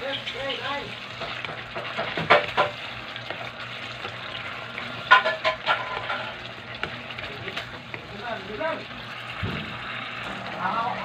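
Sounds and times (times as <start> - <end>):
food sizzling in a wok: 0.0 - 11.0
ladle scraping and knocking pan: 1.1 - 8.2.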